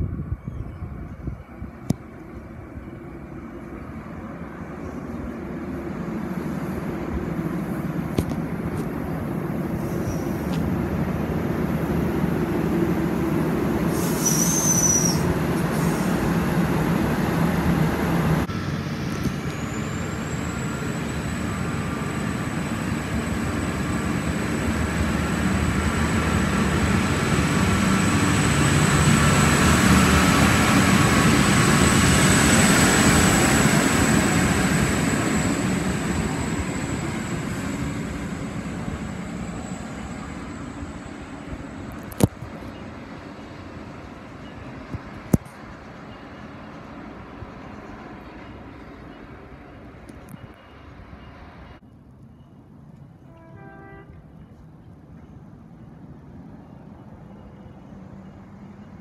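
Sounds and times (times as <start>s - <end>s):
train engine rumble: 0.0s - 59.0s
train high whine: 0.0s - 59.0s
train brake squeal: 9.8s - 10.5s, 13.9s - 16.2s.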